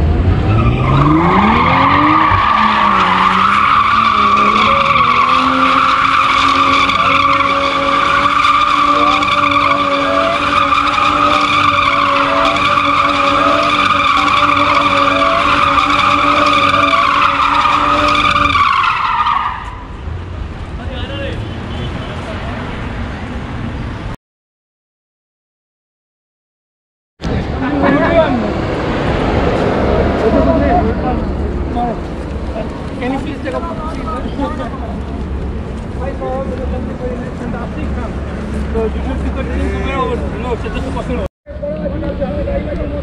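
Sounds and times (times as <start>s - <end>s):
car engine revving: 0.0s - 19.6s
tyres squealing: 0.4s - 19.9s.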